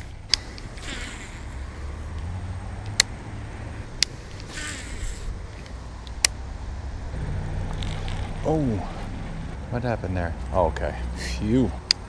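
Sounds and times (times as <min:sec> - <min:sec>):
low steady rumble: 0:00.0 - 0:12.0
reel clicks: 0:04.0 - 0:06.4.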